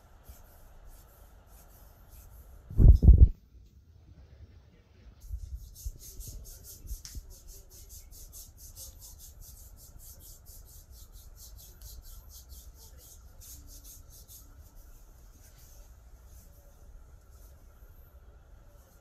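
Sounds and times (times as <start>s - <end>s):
hand rubbing skin: 5.4s - 16.6s.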